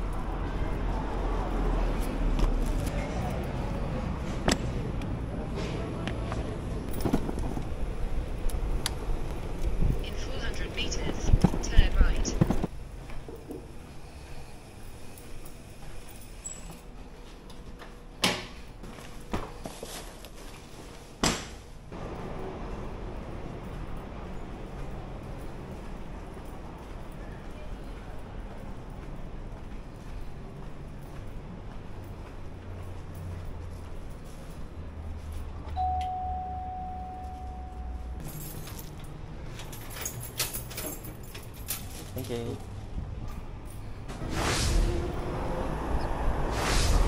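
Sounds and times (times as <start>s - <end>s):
doorbell tone: 35.8s - 38.3s.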